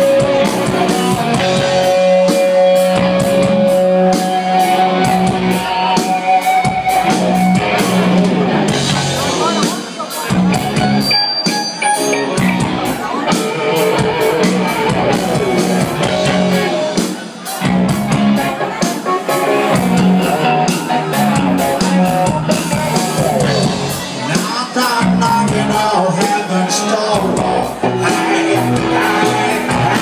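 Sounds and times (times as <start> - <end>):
bass guitar: 0.0 - 30.0
drum kit steady beat: 0.0 - 30.0
electric guitar: 0.0 - 30.0
person singing: 20.0 - 30.0.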